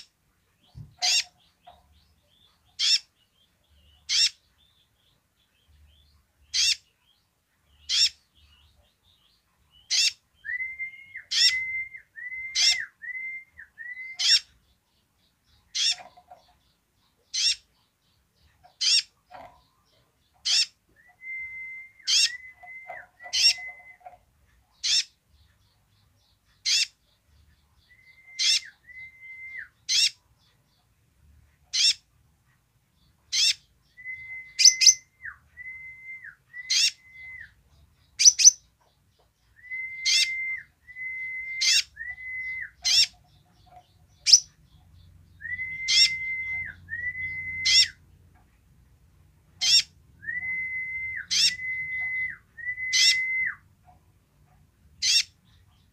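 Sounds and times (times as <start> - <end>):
bird calling high notes: 20.6 - 24.0, 39.6 - 43.1, 45.4 - 48.0, 49.6 - 53.6.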